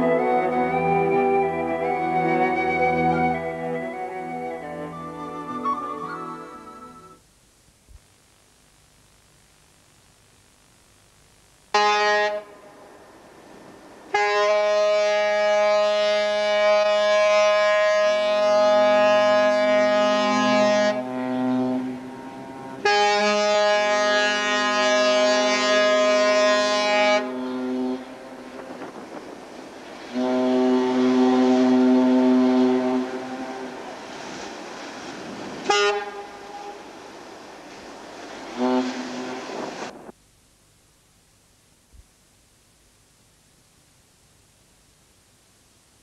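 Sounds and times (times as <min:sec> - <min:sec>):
deeper ship horn: 0:11.7 - 0:12.9, 0:14.1 - 0:28.9, 0:30.1 - 0:34.4, 0:35.5 - 0:37.1, 0:38.5 - 0:39.9
ship horn blasts: 0:11.7 - 0:13.0, 0:14.1 - 0:29.3, 0:29.9 - 0:37.4, 0:38.4 - 0:40.0.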